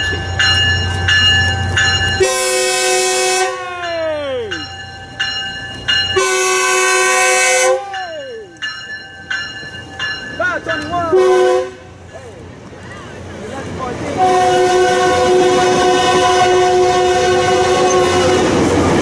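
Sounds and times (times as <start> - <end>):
locomotive bell ringing: 0.0 - 11.8
train horn blasts: 2.2 - 3.6, 6.2 - 7.9, 11.1 - 12.0, 14.2 - 18.6.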